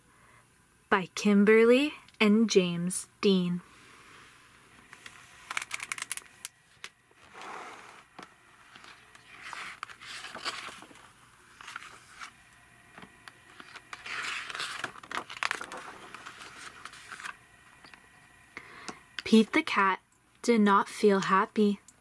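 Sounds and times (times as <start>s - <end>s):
paper pages turning: 4.8s - 12.4s, 13.0s - 17.4s
book being handled: 4.8s - 17.4s.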